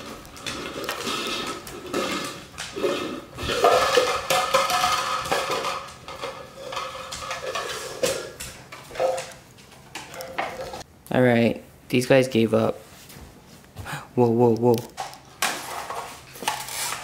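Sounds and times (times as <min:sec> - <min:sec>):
plastic cups clattering on wood floor: 0:00.0 - 0:10.8, 0:15.0 - 0:17.0.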